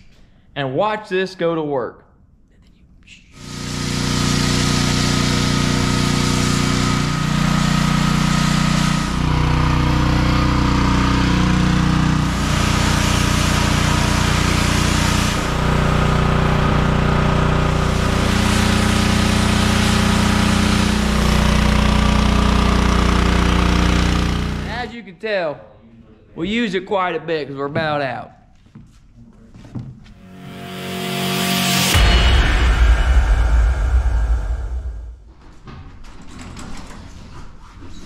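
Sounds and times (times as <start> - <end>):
pressure washer motor running: 3.4 - 24.8.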